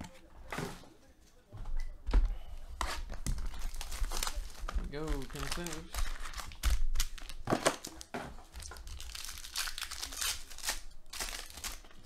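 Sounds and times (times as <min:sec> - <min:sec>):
foil packs crinkling and tearing: 0:03.4 - 0:12.0.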